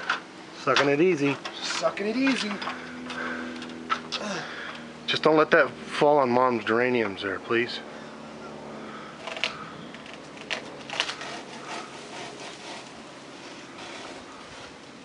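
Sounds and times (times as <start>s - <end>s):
dry palm fronds crackling: 0.0s - 4.7s, 9.2s - 15.0s
faint background hum: 0.0s - 15.0s.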